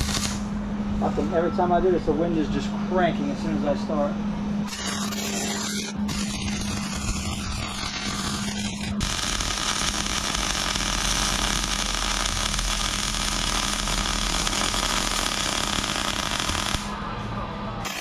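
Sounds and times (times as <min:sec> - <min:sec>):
welding arc crackling: 0:00.0 - 0:00.5, 0:04.7 - 0:17.0.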